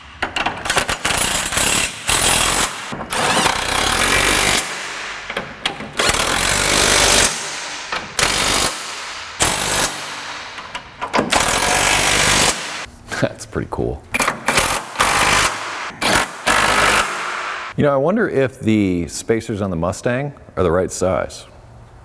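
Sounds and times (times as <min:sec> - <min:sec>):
impact wrench bursts: 0:00.3 - 0:12.9, 0:14.2 - 0:17.8.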